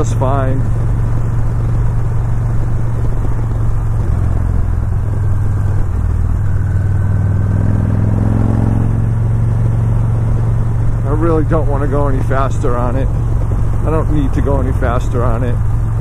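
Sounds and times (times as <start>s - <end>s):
motorcycle engine cruising: 0.0s - 16.0s.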